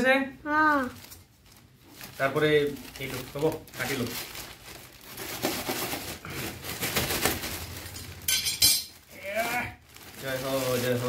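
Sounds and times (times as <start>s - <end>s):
plastic wrapping crinkling: 0.5s - 11.0s
metal blade clattering on tiles: 8.3s - 9.0s.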